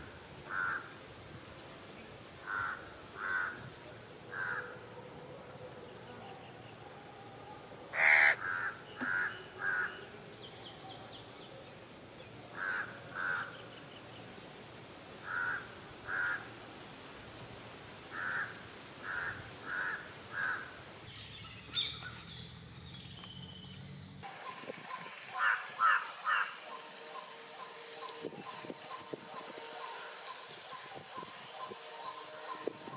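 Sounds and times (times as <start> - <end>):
crows cawing: 0.5 - 0.9, 2.4 - 3.6, 4.3 - 4.8, 7.9 - 9.9, 12.6 - 13.5, 15.2 - 16.5, 18.1 - 20.8, 25.4 - 26.8.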